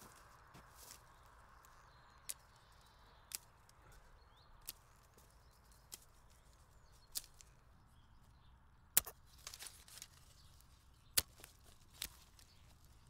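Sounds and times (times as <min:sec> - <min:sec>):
dry stems crackling: 0:00.0 - 0:13.0
secateurs snipping stems: 0:03.3 - 0:03.8, 0:04.6 - 0:05.1, 0:07.0 - 0:07.5, 0:09.0 - 0:10.2, 0:11.1 - 0:12.6.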